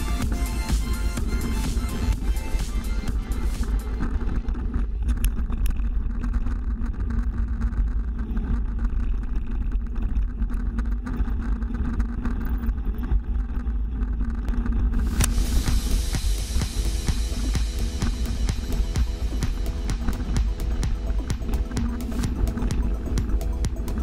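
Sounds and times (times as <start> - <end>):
wind rumble on microphone: 0.0 - 24.0
bike rattling over gravel: 3.9 - 15.7.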